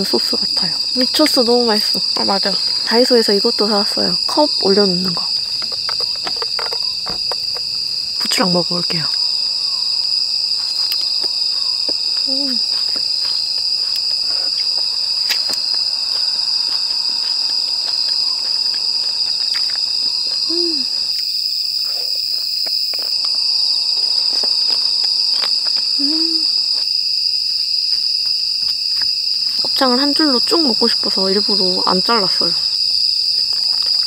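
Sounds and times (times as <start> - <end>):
crickets chirping: 0.0 - 34.0
person humming: 20.4 - 21.0, 26.0 - 26.6.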